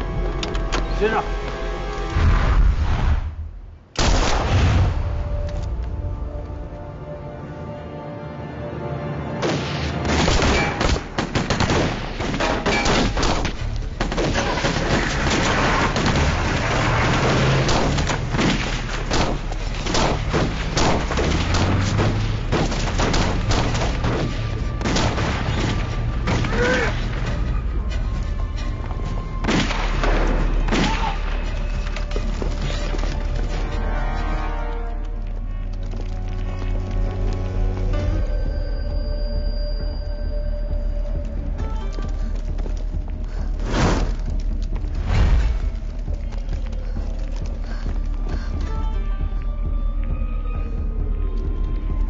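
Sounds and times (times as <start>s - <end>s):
background music: 0.0s - 52.0s
rapid gunshots: 10.1s - 25.8s.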